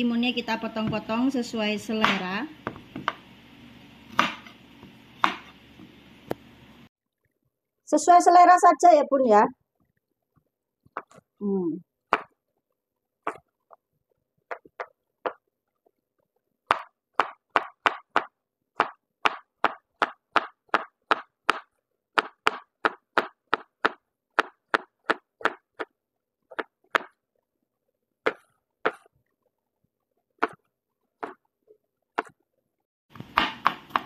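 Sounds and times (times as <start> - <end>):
knife chopping on wooden board: 1.9 - 3.3, 4.1 - 5.9, 12.1 - 12.3, 16.7 - 25.9, 26.5 - 27.2, 28.3 - 29.1, 31.2 - 31.4, 33.2 - 34.0.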